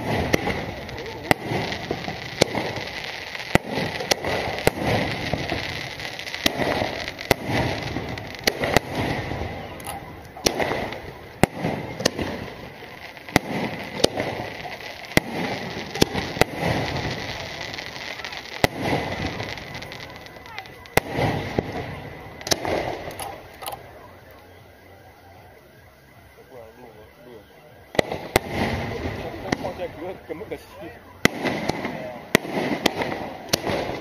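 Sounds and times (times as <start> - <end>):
firework shells bursting: 0.0 - 24.0.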